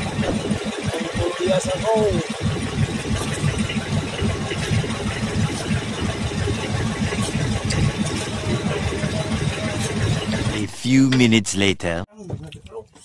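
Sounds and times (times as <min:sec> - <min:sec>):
boat engine throbbing: 0:00.0 - 0:12.0.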